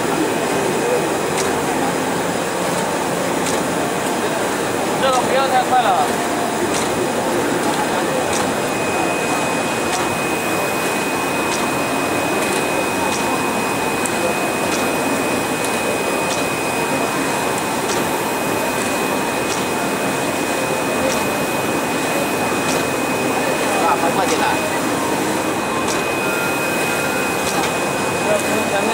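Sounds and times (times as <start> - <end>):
high machine whine: 0.0 - 28.9
machine humming: 0.0 - 28.9.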